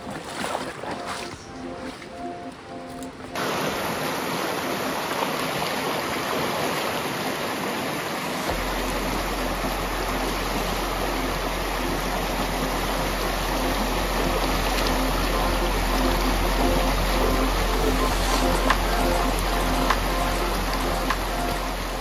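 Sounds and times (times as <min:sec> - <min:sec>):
river water rushing over rapids: 0:00.0 - 0:22.0
deep low rumble: 0:08.5 - 0:22.0.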